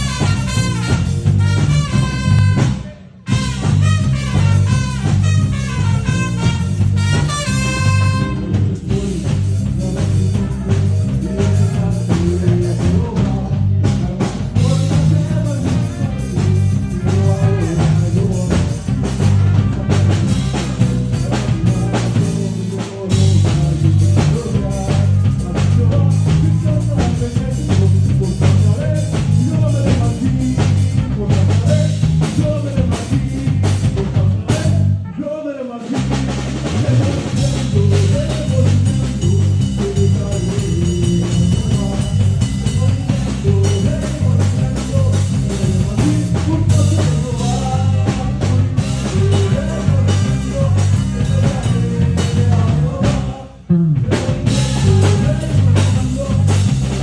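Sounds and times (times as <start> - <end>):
trumpets: 0.0 - 8.8, 10.2 - 12.0, 15.3 - 22.0, 34.6 - 36.0
drum kit: 0.0 - 35.2, 35.8 - 57.0
electric bass: 0.0 - 57.0.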